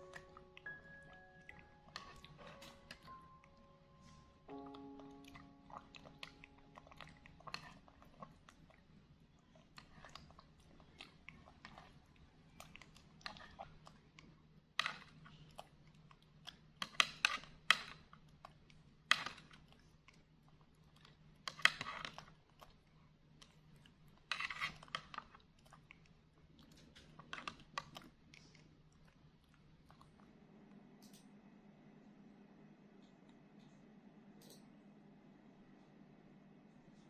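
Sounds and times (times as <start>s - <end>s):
plastic spoon scraping a cup: 24.3s - 25.0s.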